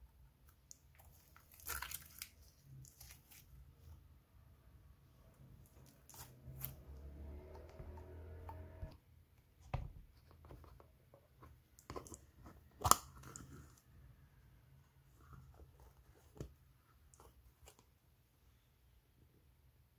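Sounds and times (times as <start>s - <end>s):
slime squishing and crackling: 0.6s - 3.5s.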